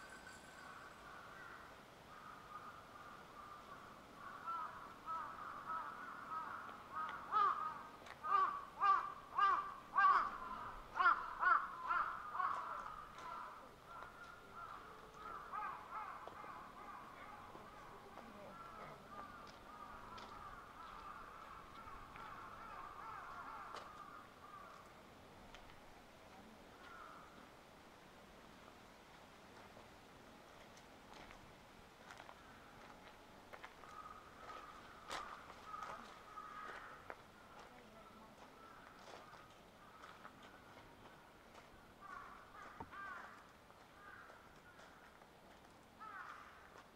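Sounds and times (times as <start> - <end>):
crows cawing: 0.6 - 24.9, 26.8 - 27.4, 33.5 - 45.2, 46.0 - 46.9.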